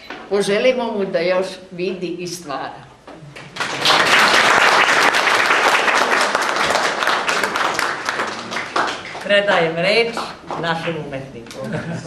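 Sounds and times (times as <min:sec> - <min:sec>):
audience applauding: 0:03.5 - 0:09.7.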